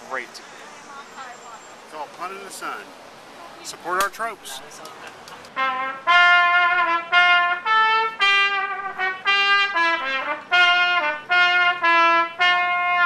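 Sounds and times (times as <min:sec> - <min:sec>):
solo trumpet slow melody: 0:05.6 - 0:13.0.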